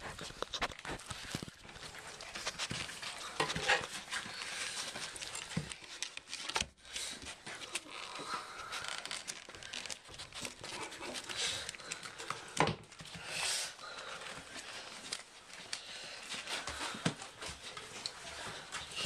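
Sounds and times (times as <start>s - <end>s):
puppy breathing: 0.0s - 5.9s
newspaper crinkling and rustling: 0.0s - 19.0s.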